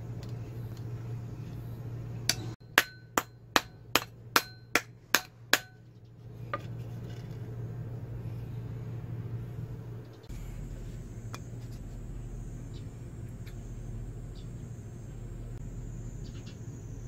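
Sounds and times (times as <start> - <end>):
hammer striking steel: 2.3 - 5.8.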